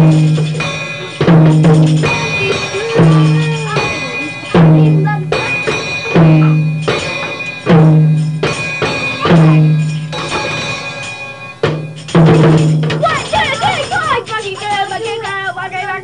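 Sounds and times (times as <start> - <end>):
heavy low bass note: 0.0 - 7.0
percussion: 0.0 - 16.0
person singing: 2.0 - 6.6.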